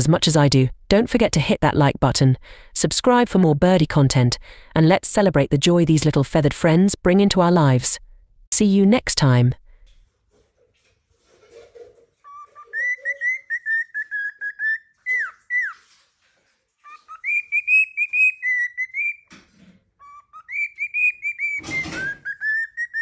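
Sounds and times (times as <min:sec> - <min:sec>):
cockatiel whistling: 0:12.3 - 0:15.8, 0:16.9 - 0:19.3, 0:20.0 - 0:23.0
scratchy rustle: 0:15.7 - 0:17.1.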